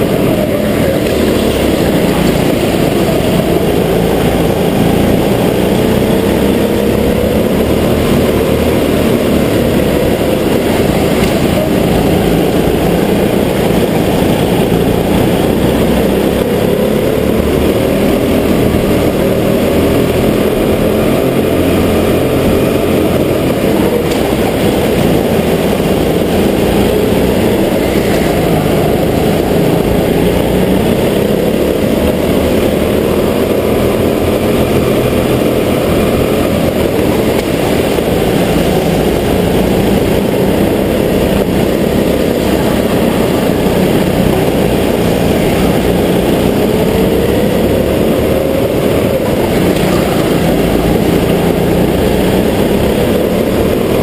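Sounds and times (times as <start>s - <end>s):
go-kart engine running: 0.0s - 54.0s.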